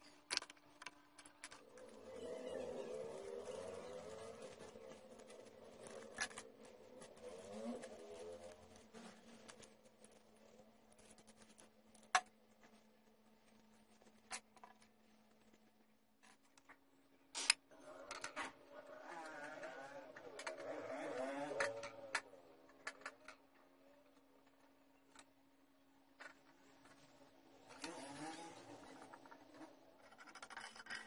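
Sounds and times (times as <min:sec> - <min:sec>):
clicks of small plastic parts: 0:00.0 - 0:02.0, 0:19.2 - 0:23.5.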